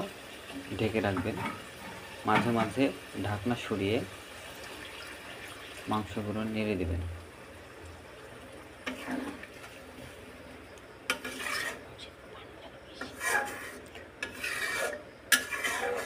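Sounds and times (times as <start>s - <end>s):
metal spatula scraping metal pot: 1.1s - 2.8s, 8.8s - 9.5s, 11.1s - 11.8s, 13.0s - 16.0s.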